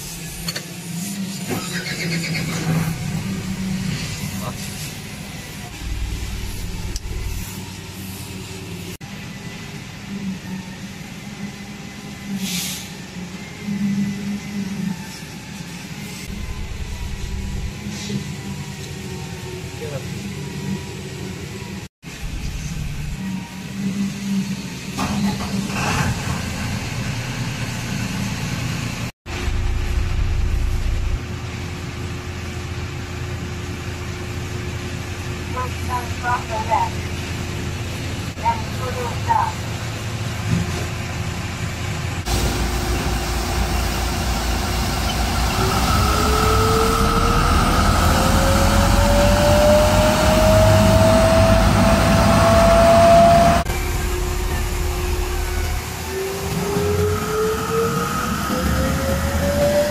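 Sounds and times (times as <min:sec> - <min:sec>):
diesel engine rumbling: 0:00.0 - 0:14.7, 0:25.7 - 0:59.9
rising whine: 0:02.6 - 0:25.4, 0:29.3 - 0:32.8, 0:41.5 - 0:59.9
sweeper truck drone and hiss: 0:02.6 - 0:29.0, 0:41.0 - 0:59.9.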